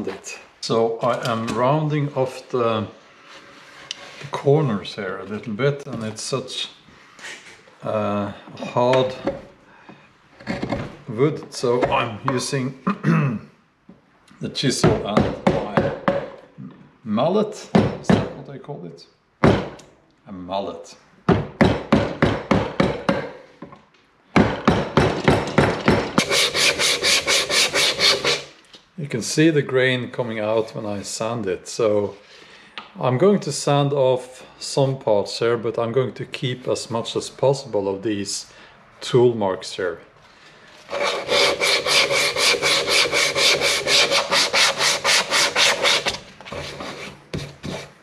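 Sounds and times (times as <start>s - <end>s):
wooden mallet striking chisel: 14.8s - 16.4s, 21.3s - 23.4s, 24.4s - 26.2s
sharp knocks: 19.4s - 19.8s, 24.4s - 26.3s
sandpaper rubbing wooden bowl: 26.2s - 28.5s, 40.9s - 48.0s.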